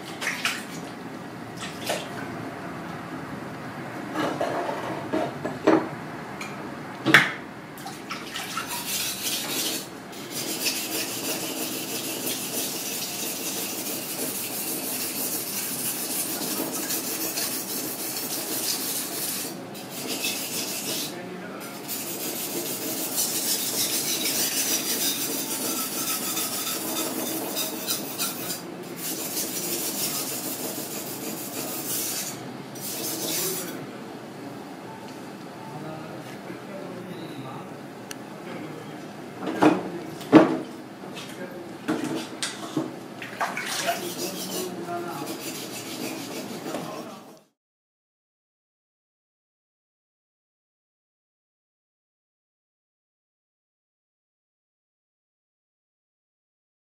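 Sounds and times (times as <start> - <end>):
knife rasping on sharpening stone: 8.6 - 33.8, 43.7 - 47.4.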